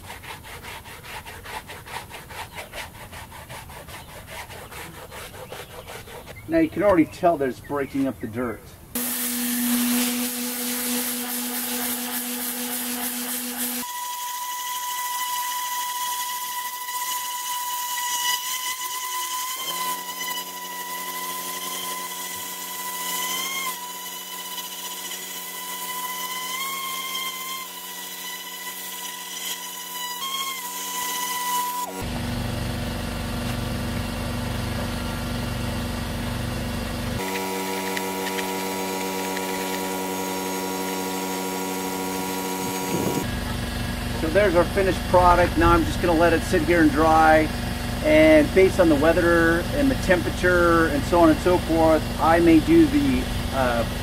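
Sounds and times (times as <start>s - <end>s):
low mechanical drone: 31.9s - 54.0s.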